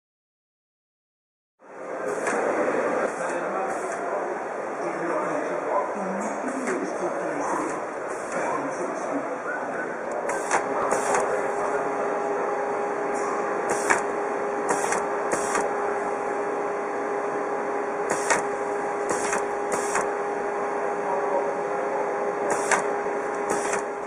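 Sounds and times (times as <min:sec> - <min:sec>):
faint background chatter: 0:01.6 - 0:15.4, 0:20.4 - 0:23.2
label machine humming: 0:01.6 - 0:24.0
short noisy bursts: 0:10.2 - 0:11.6, 0:13.0 - 0:15.8, 0:18.0 - 0:20.2, 0:22.4 - 0:24.0.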